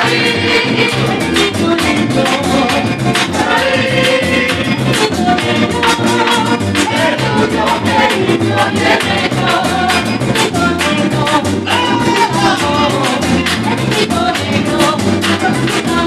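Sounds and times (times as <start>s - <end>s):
rattling percussion: 0.0s - 16.0s
voices singing together: 0.0s - 16.0s.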